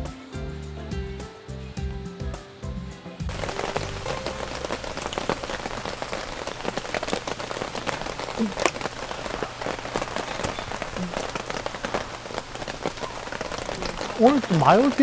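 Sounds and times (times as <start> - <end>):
rain falling: 0.0 - 15.0
raindrops hitting close by: 3.2 - 15.0.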